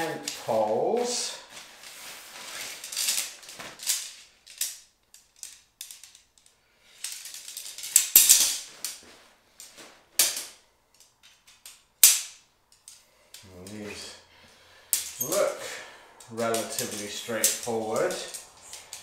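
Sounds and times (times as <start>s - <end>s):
tent pole sections clacking: 0.0s - 14.1s, 14.8s - 19.0s
fabric rustling: 0.3s - 4.3s, 7.5s - 10.2s.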